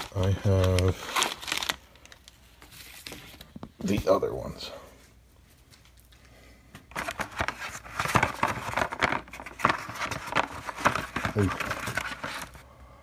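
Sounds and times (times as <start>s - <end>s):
cardboard box crinkling and rustling: 0.0s - 1.8s, 7.0s - 12.6s.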